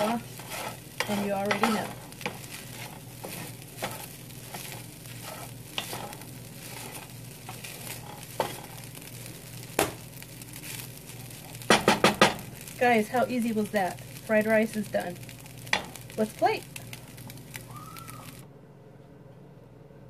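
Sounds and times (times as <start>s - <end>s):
spatula stirring and scraping: 0.0s - 18.4s
rice sizzling in a skillet: 0.0s - 18.5s
spatula knocking against pan: 11.7s - 12.4s.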